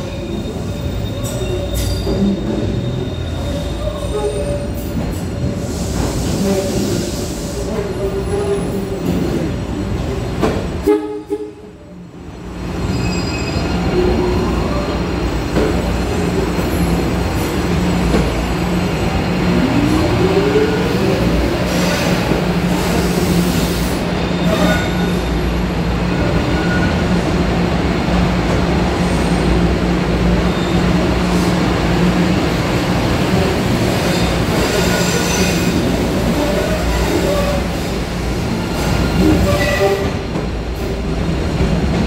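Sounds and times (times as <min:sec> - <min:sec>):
subway train wheels on rails: 0:00.0 - 0:42.0.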